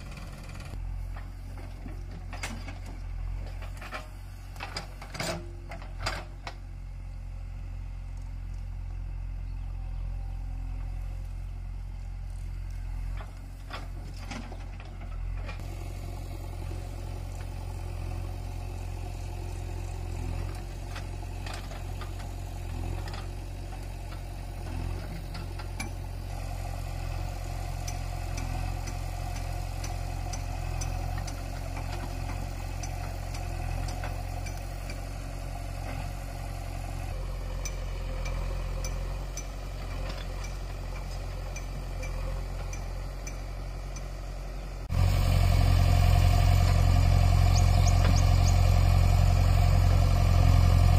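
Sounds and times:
diesel engine running: 0.0 - 50.9.

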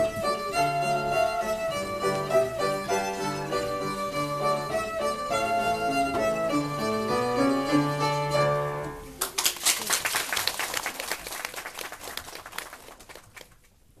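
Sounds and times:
instrumental accompaniment: 0.0 - 9.2
audience applause: 9.2 - 13.7.

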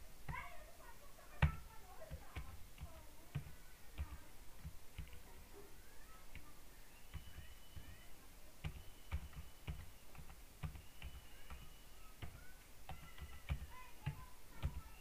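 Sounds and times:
keyboard typing clicks: 8.6 - 15.0.

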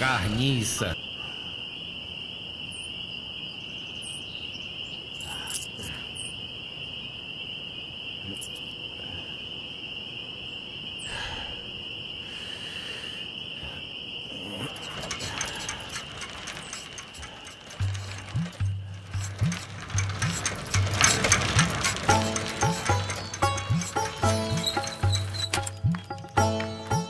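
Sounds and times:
crickets chirping: 0.0 - 27.0
rapid faint clicking: 14.7 - 27.0.

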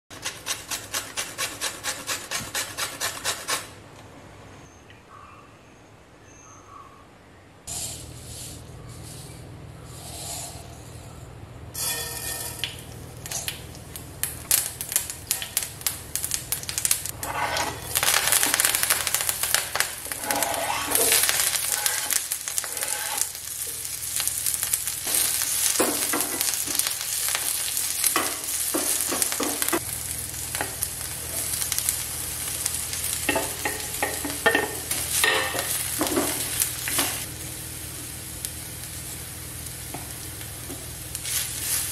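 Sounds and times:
steady low hum: 7.0 - 25.2
onion sizzling in oil: 11.8 - 41.9
wooden spatula scraping pan: 17.1 - 19.2, 20.0 - 23.3.

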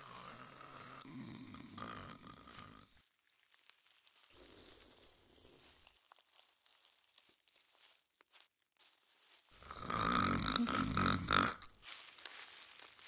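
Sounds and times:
person snoring: 0.0 - 3.0, 9.6 - 11.7.

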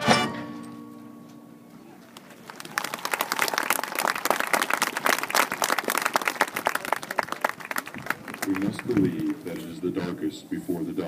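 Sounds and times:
crowd applauding: 2.0 - 9.7.

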